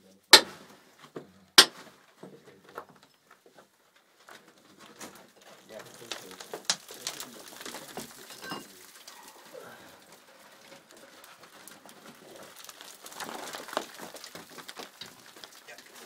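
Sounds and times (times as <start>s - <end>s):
scrambling over loose rock: 1.6s - 16.0s
stones clattering: 4.8s - 16.0s.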